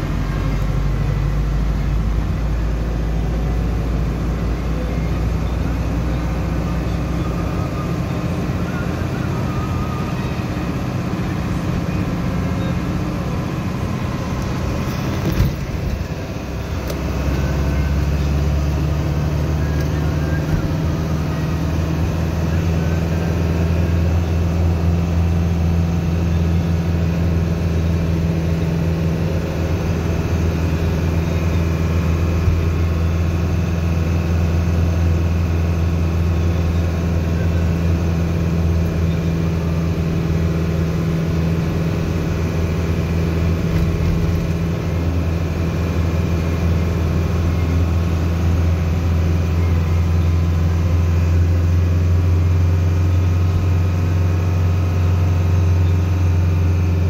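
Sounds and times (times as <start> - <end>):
vehicle engine droning: 0.0 - 57.0.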